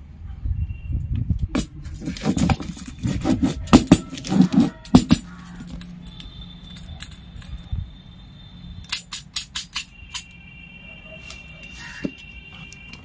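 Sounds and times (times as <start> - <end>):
knife scraping cardboard: 1.9 - 5.2.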